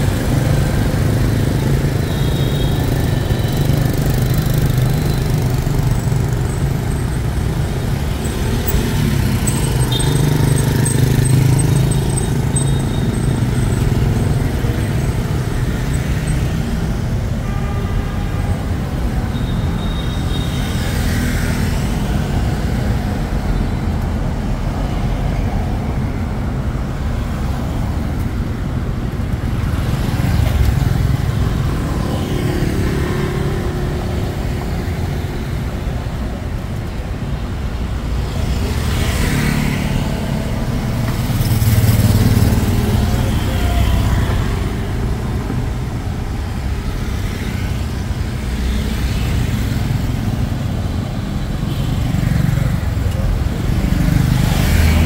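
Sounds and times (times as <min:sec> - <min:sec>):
motorbike engines passing: 0:00.0 - 0:17.4, 0:20.6 - 0:55.0
car engines passing: 0:20.7 - 0:55.0.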